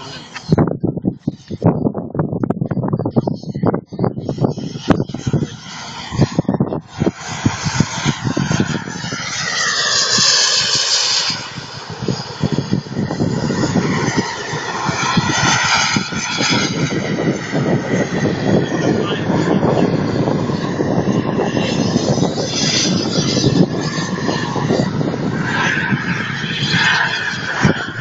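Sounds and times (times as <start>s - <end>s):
wind rumbling on microphone: 0.0s - 28.0s
model jet turbine whine: 2.8s - 28.0s.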